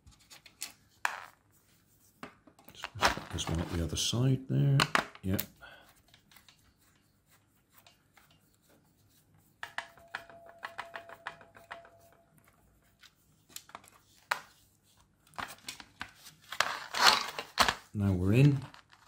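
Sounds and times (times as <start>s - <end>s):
thin squeak: 9.6s - 12.9s.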